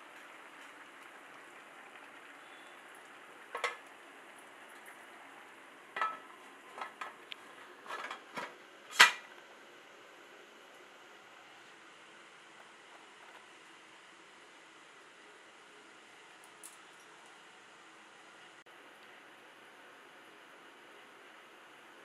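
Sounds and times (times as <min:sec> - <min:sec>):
rice simmering hiss: 0:00.0 - 0:22.0
metal lid clinking against pot: 0:06.0 - 0:07.0.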